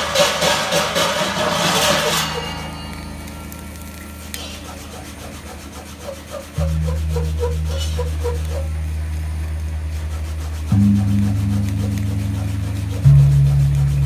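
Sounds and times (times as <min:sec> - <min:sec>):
gong face being rubbed: 0:00.0 - 0:14.0
gongs humming: 0:00.0 - 0:14.0
loud gong tone: 0:01.4 - 0:04.3.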